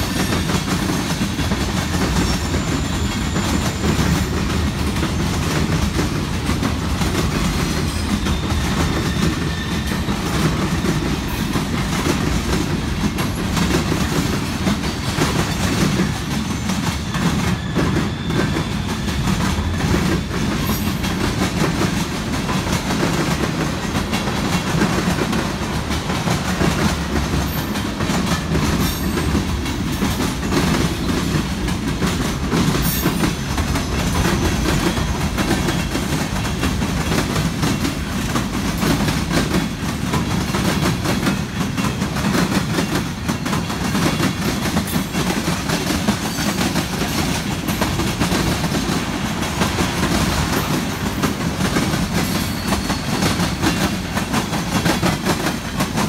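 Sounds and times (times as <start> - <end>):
clacks over rail joints: 0.0 - 56.0
train wheels rumbling on rail: 0.0 - 56.0.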